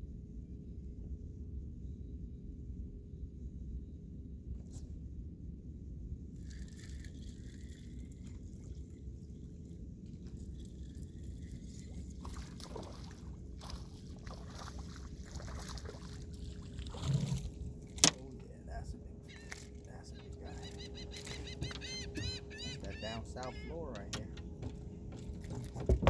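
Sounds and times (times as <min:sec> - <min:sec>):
low wind rumble: 0:00.0 - 0:26.0
water lapping against boat: 0:06.4 - 0:18.6, 0:19.2 - 0:26.0.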